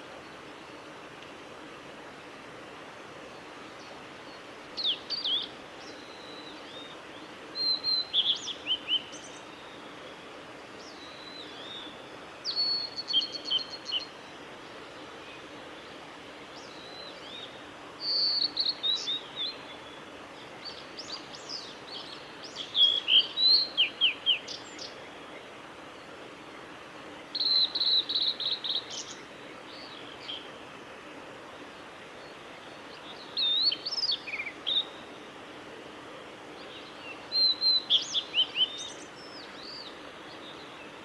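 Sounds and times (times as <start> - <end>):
background hiss: 0.0 - 41.0
bird singing whistled notes: 4.8 - 7.0, 7.6 - 9.9, 10.8 - 14.2, 16.6 - 20.0, 20.6 - 25.0, 27.3 - 30.4, 33.0 - 35.0, 36.7 - 40.6.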